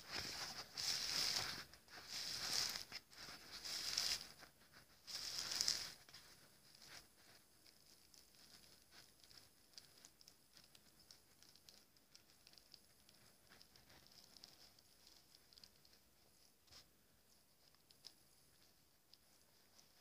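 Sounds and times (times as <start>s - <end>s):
plastic bag crinkling: 5.1s - 15.9s.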